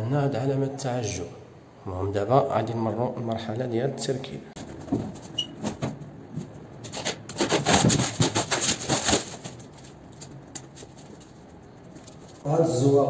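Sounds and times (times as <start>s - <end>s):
board scraping against cardboard box: 6.9s - 9.6s.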